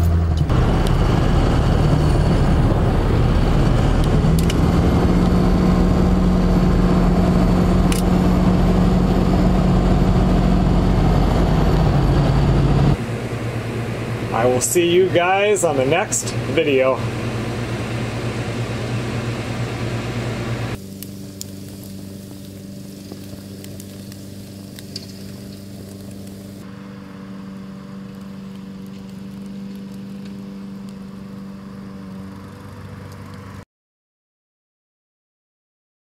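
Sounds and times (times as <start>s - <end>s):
low drone: 0.0s - 33.6s
air conditioner humming: 12.9s - 27.0s.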